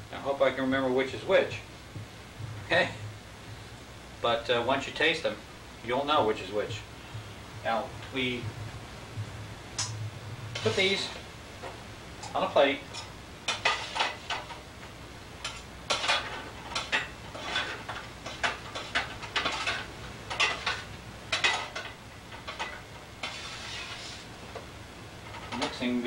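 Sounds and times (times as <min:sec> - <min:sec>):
spatula scraping cookie sheet: 0:10.6 - 0:11.2, 0:13.5 - 0:14.4, 0:23.2 - 0:24.3.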